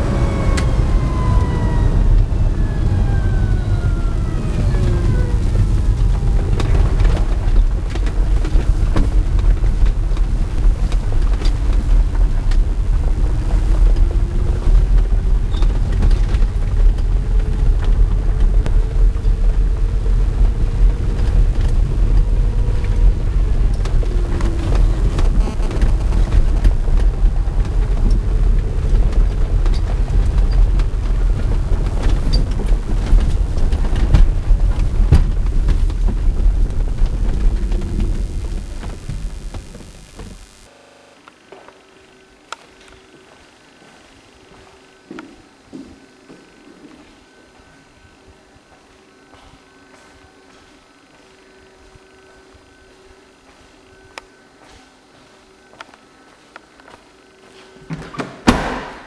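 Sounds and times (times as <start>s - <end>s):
road and wind noise rumble: 0.0s - 40.7s
electric motor whine: 0.0s - 54.5s.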